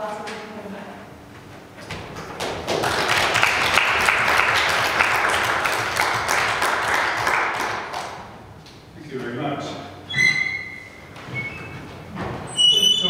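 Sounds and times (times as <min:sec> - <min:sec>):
audience applauding: 0:02.2 - 0:08.4.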